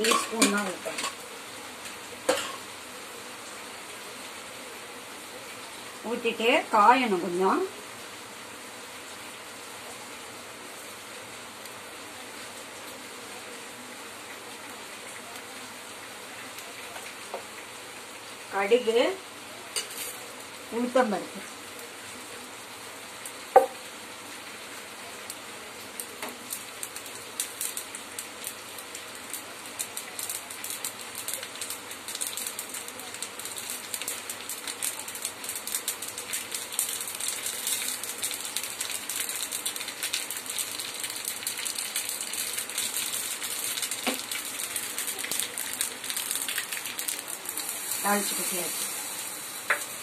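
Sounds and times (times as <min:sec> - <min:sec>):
seeds crackling and popping in oil: 0:00.0 - 0:01.2, 0:26.0 - 0:49.0, 0:49.6 - 0:50.0
oil sizzling: 0:00.0 - 0:50.0.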